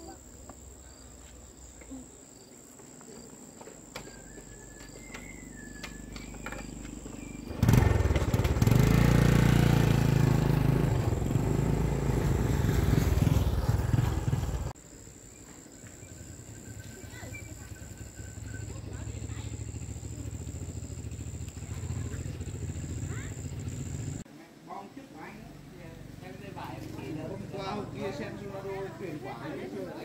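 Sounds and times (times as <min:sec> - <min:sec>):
crickets trilling: 0:00.0 - 0:09.3, 0:10.5 - 0:24.2
motorcycle engine: 0:05.8 - 0:14.8, 0:16.0 - 0:24.2.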